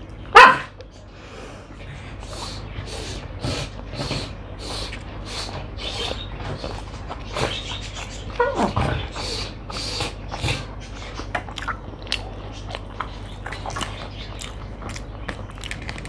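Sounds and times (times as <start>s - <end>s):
chewing and mouth clicks: 10.4s - 16.0s.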